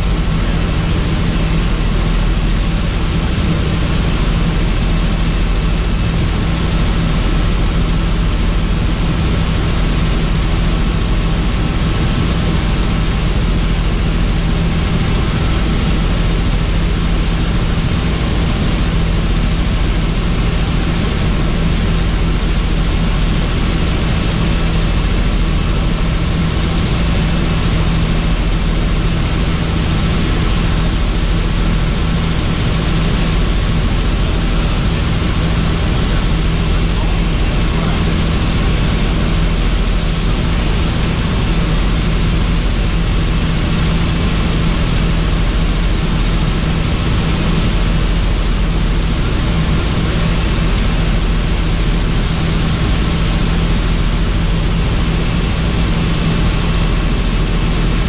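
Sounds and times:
helicopter rotor and engine: 0.0 - 58.0.

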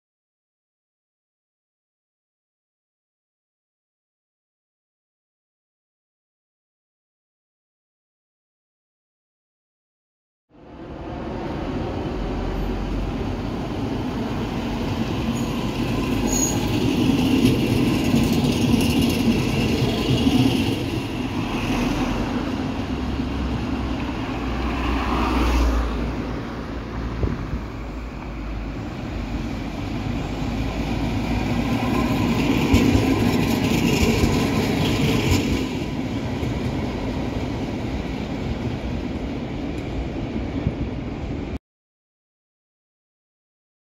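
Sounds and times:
city street traffic: 10.5 - 41.6
tram running on rails: 10.6 - 41.6.

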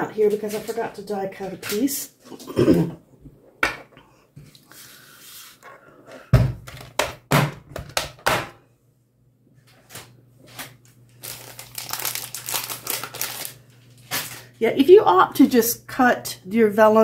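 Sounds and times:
knocks and thuds: 6.3 - 8.6
paper rustling and crinkling: 9.7 - 14.5.

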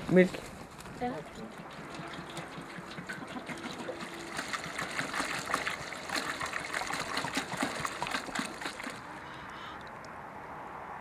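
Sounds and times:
milk splashing into metal pot: 1.6 - 9.1.

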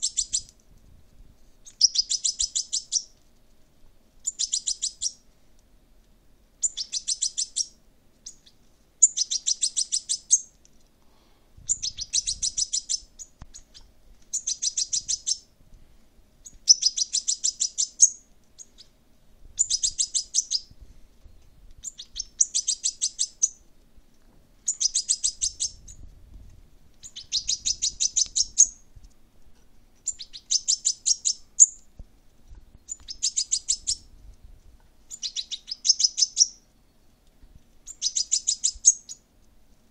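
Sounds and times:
fledgling bird begging chirps: 0.0 - 0.5, 1.6 - 3.2, 4.2 - 5.2, 6.6 - 10.5, 11.7 - 15.5, 16.4 - 19.0, 19.6 - 23.6, 24.6 - 26.0, 27.0 - 28.9, 30.0 - 31.9, 32.8 - 34.1, 35.1 - 37.2, 37.8 - 39.2.

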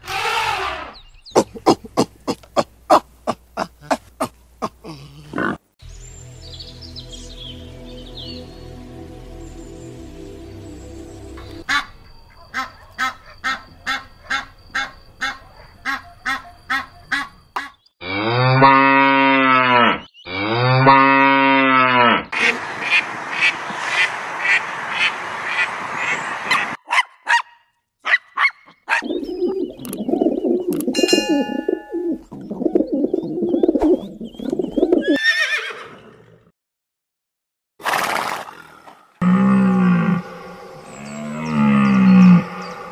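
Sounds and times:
geese honking: 9.9 - 17.7
ducks quacking: 11.6 - 17.7.

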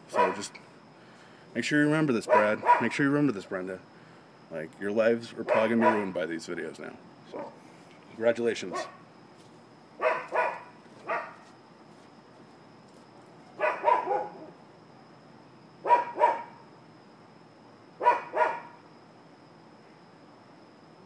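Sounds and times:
dog barking: 0.1 - 0.5, 2.3 - 3.0, 5.5 - 6.2, 7.3 - 7.6, 8.7 - 9.0, 10.0 - 11.4, 13.6 - 14.5, 15.8 - 16.6, 18.0 - 18.8.

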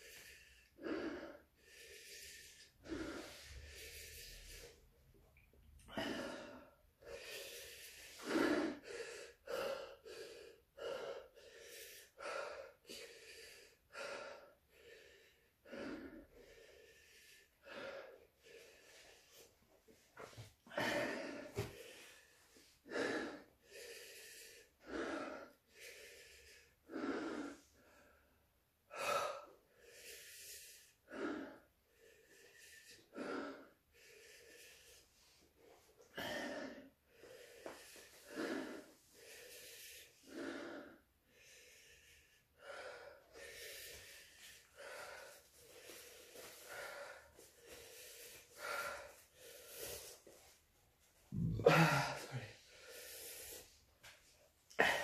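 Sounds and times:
man panting: 0.0 - 4.9, 5.8 - 19.5, 20.2 - 28.2, 36.0 - 50.6, 51.3 - 53.8, 54.7 - 55.0.

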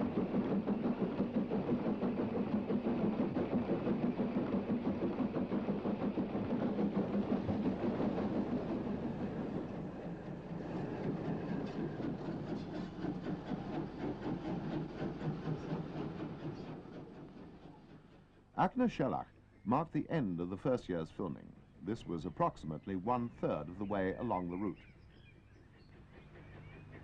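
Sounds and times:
wheels clattering over rails: 0.0 - 18.2
steam locomotive exhaust beats: 0.0 - 21.2, 21.8 - 27.0.

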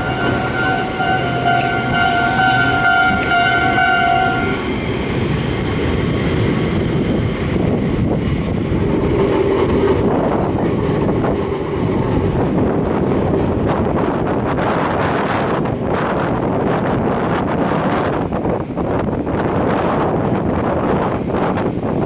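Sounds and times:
high two-tone tram horn: 0.0 - 4.7
tram wheels clattering on rails: 0.0 - 22.0.

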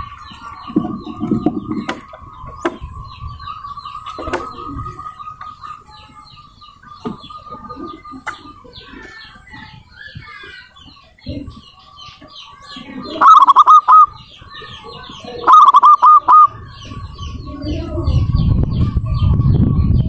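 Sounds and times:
small birds chirping: 0.0 - 20.0
steady high tone: 15.4 - 16.5.

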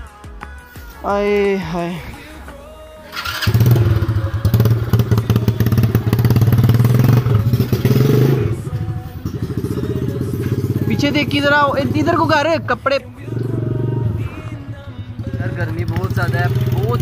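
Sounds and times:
quad bike engine running: 3.2 - 17.0.

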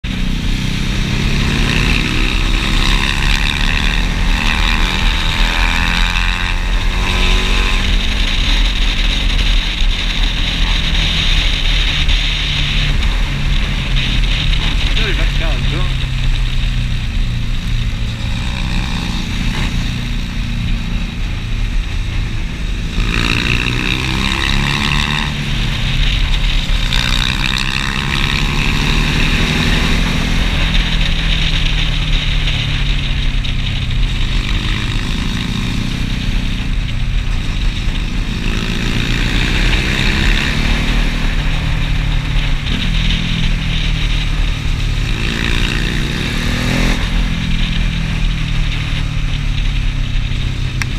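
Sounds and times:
motorcycle engine revving: 0.0 - 50.9.

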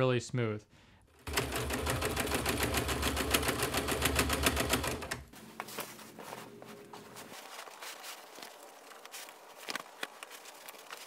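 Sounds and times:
sewing machine stitching: 1.2 - 5.3.

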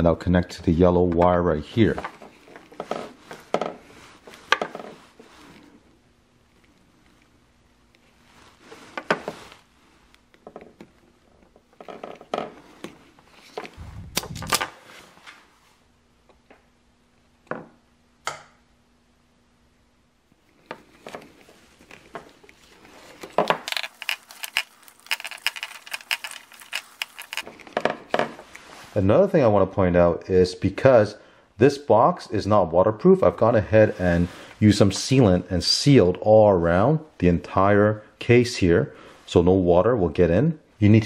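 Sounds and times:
wires and plastic connectors clicking: 23.2 - 27.6
crackling clicks: 23.7 - 27.4.

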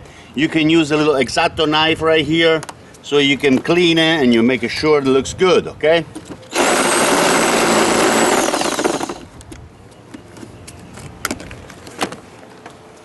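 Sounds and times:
cordless drill whine: 6.5 - 9.3.

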